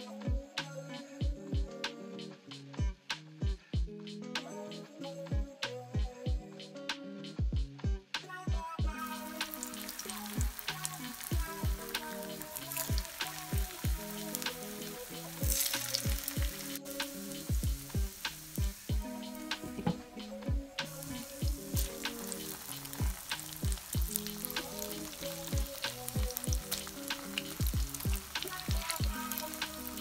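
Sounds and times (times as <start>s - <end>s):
background music with a steady beat: 0.0s - 30.0s
oil sizzling in a pan: 8.8s - 30.0s.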